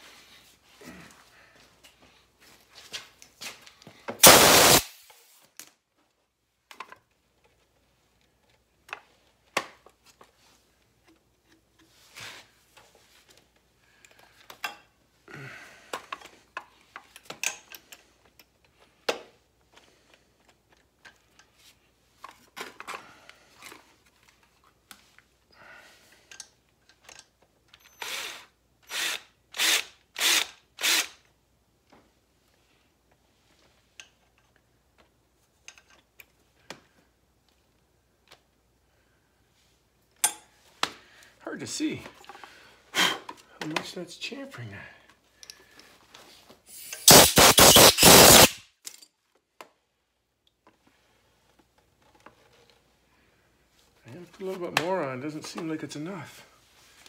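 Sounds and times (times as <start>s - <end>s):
power drill bursts: 4.2s - 5.1s, 27.9s - 31.2s, 46.7s - 48.6s
handling clicks and scrapes: 45.4s - 49.0s.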